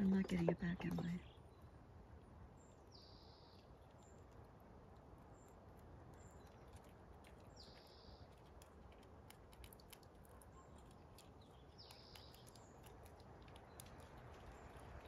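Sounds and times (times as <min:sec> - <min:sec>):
squirrel gnawing clicks: 0:03.5 - 0:15.0.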